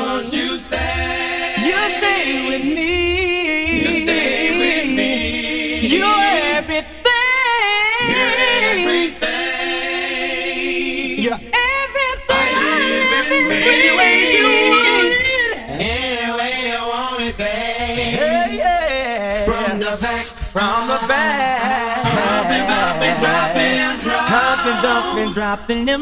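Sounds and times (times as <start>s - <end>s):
male vocal group singing a cappella: 0.0s - 26.0s.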